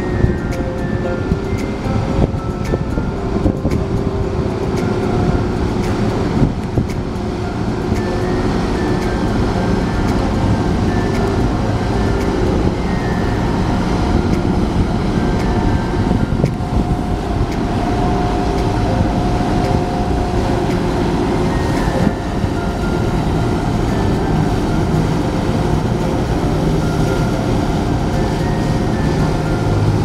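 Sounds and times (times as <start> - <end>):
low engine drone: 0.0 - 30.0
rushing water: 0.0 - 30.0.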